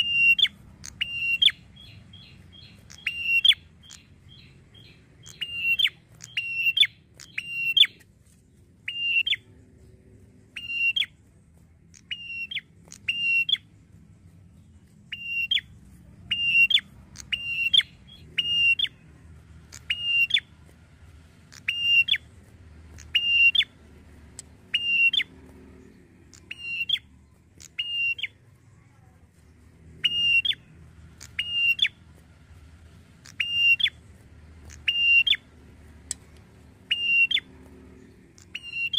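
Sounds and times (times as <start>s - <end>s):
bird calling sharp high notes: 0.0s - 8.0s, 16.3s - 19.0s, 19.7s - 20.5s, 21.5s - 22.3s, 23.0s - 23.7s, 24.7s - 25.4s, 26.3s - 28.4s, 30.0s - 30.6s, 31.2s - 32.0s, 33.2s - 34.0s, 34.6s - 35.5s, 36.8s - 37.6s, 38.4s - 38.9s.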